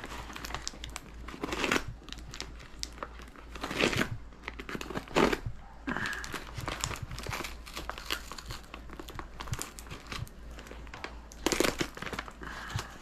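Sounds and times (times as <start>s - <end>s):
paper ripping: 0.0s - 10.2s
tape and paper crinkling: 0.0s - 13.0s.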